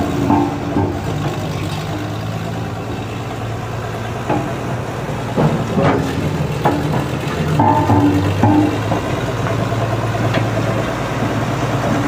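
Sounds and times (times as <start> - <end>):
road roller diesel engine running: 0.0 - 12.0.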